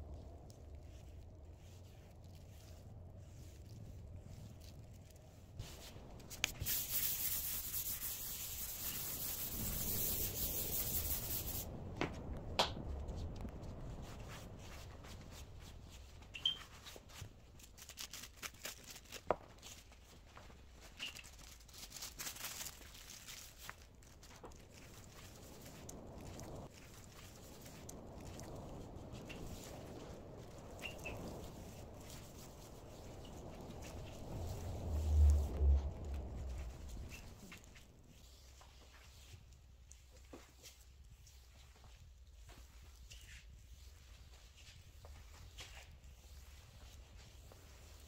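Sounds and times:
cloth rubbing on wooden tabletop: 0:05.6 - 0:11.7.

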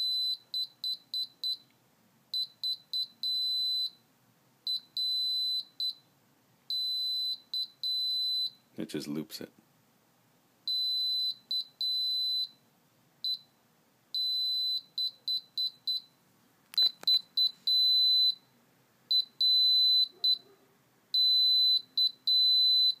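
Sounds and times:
piezo buzzer morse code beeps: 0:00.0 - 0:01.6, 0:02.4 - 0:04.0, 0:04.7 - 0:06.1, 0:06.7 - 0:08.6, 0:10.7 - 0:12.6, 0:13.2 - 0:13.6, 0:14.2 - 0:16.2, 0:16.8 - 0:18.5, 0:19.1 - 0:20.4, 0:21.2 - 0:23.0.

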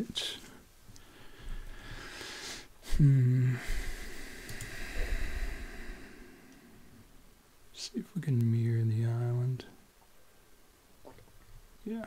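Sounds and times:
faint low rumble and hiss: 0:00.0 - 0:12.0
breath: 0:01.0 - 0:02.7, 0:03.5 - 0:07.0
man humming short filler: 0:02.8 - 0:04.0.

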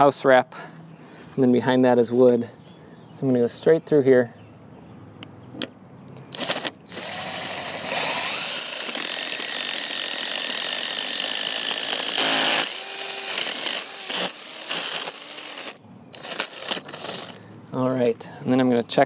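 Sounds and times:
cordless drill boring into wood: 0:06.4 - 0:17.4.

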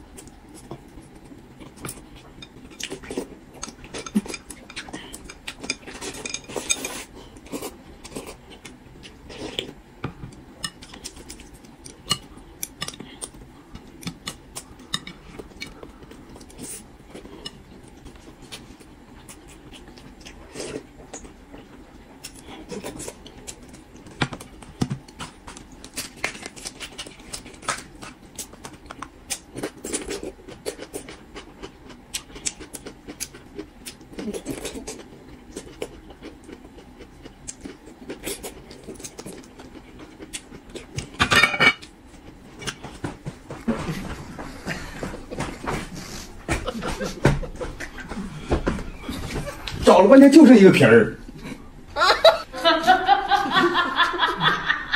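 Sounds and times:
chewing and biting: 0:10.5 - 0:41.2.

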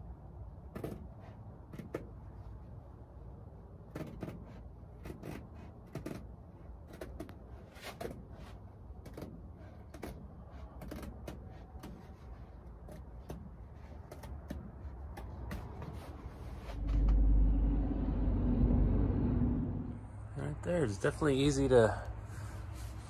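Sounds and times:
hands rustling canvas: 0:03.9 - 0:17.1
low steady rumble: 0:14.7 - 0:23.0.

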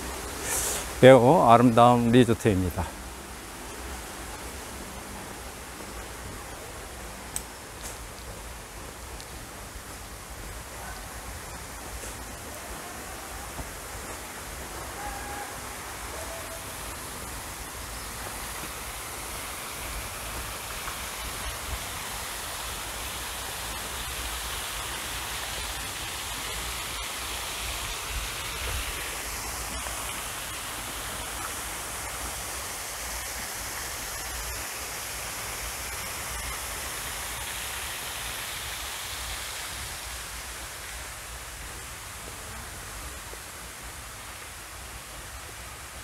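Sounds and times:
fountain water splashing: 0:00.0 - 0:46.0.

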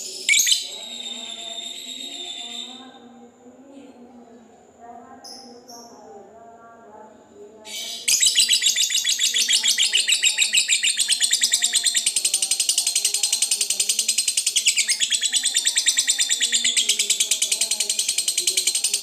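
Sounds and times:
lovebird chattering: 0:00.0 - 0:02.8, 0:07.7 - 0:19.0.

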